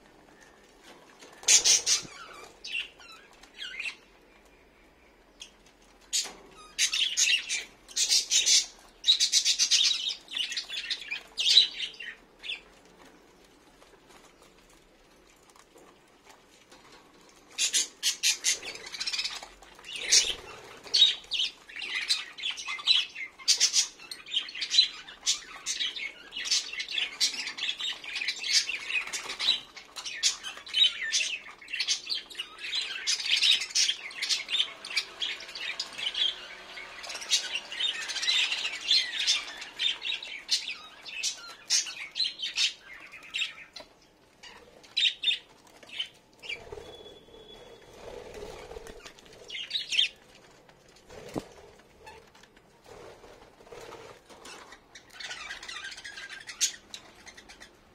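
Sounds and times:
budgerigars chirping and squawking: 1.4s - 4.0s, 6.1s - 12.6s, 17.6s - 50.2s, 54.3s - 57.8s.

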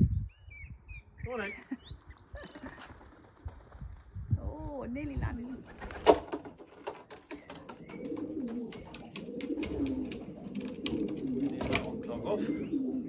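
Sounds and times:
pigeons cooing: 5.5s - 13.0s.

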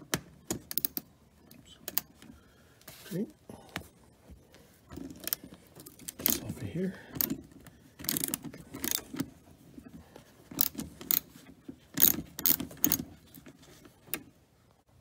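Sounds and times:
ratchet wrench clicking: 8.0s - 9.0s, 10.6s - 11.3s, 12.0s - 13.0s.

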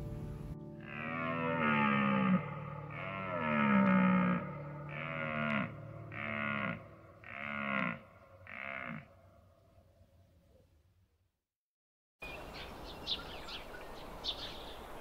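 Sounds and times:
wildebeest calling: 0.8s - 9.1s.

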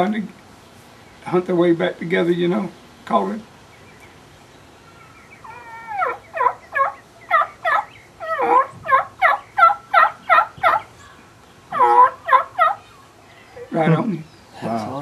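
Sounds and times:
man imitating turkey yelps: 5.4s - 10.9s, 11.7s - 12.8s.

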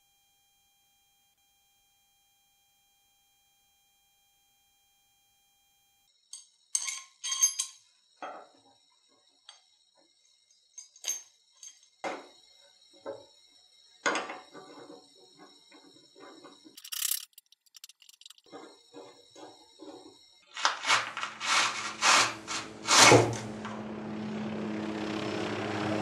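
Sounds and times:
metallic clinks: 6.3s - 7.9s, 16.8s - 18.5s.

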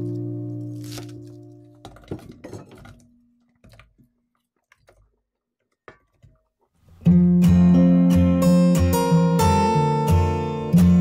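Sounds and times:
acoustic guitar music: 0.0s - 1.8s, 6.9s - 11.0s
vegetable pieces dropping into bowl: 0.0s - 4.1s.

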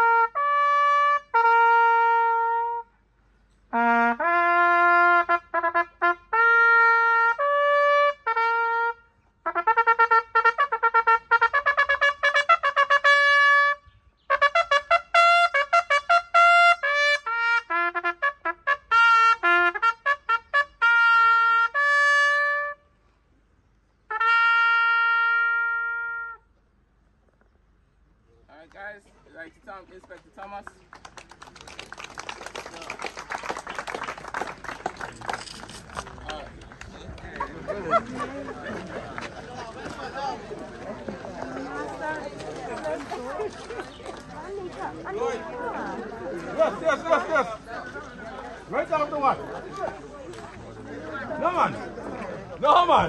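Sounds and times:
solo trumpet melody: 0.0s - 2.9s, 3.7s - 23.0s, 24.1s - 26.5s.

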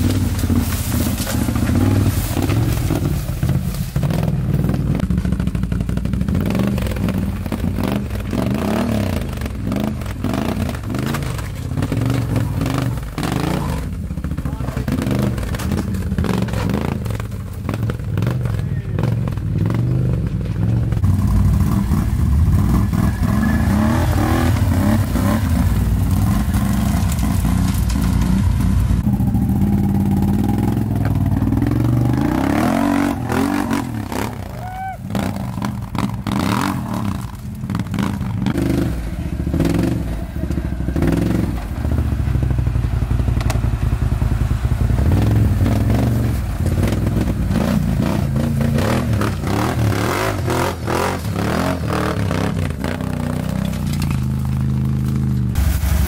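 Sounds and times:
atv engines revving: 0.0s - 56.0s
stones and tyres clattering: 0.0s - 56.0s.

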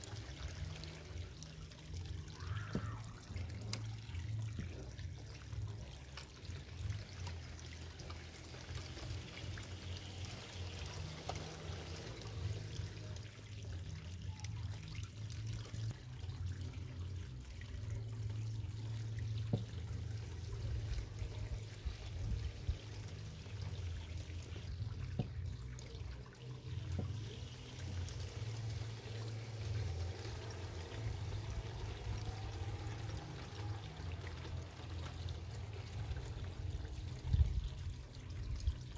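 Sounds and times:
low uneven rumble: 0.0s - 38.9s
water trickling into pond: 0.0s - 38.9s.

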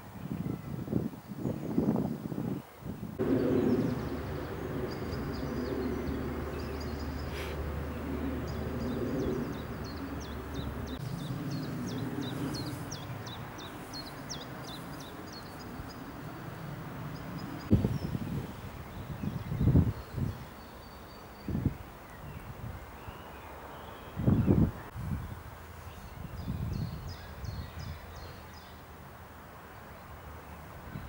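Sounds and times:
songbirds chirping: 0.0s - 31.0s
steady low rumble: 3.2s - 18.0s.

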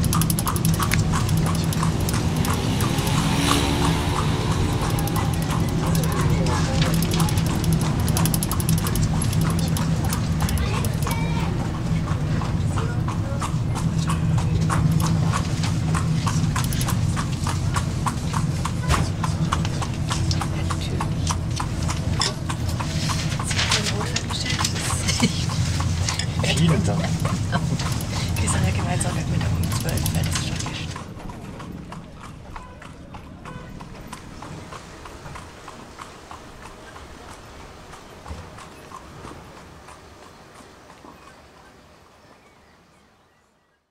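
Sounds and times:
steady low rumble: 0.0s - 32.5s
horse hooves clip-clopping: 0.0s - 42.6s.

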